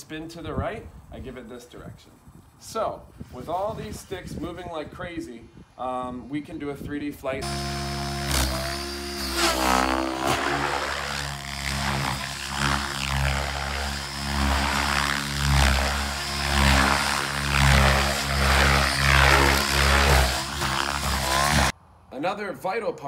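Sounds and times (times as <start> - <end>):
helicopter rotors whooshing: 7.4 - 21.7.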